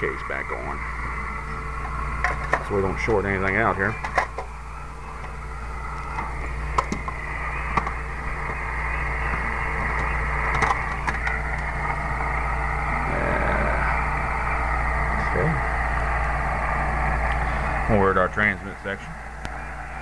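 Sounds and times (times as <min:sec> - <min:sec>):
low hum and hiss: 0:00.0 - 0:20.0.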